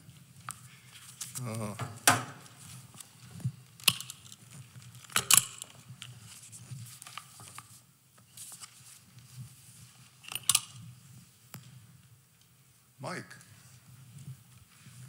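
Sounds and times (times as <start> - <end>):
paper rustling near microphone: 0.1 - 1.7, 6.0 - 10.2.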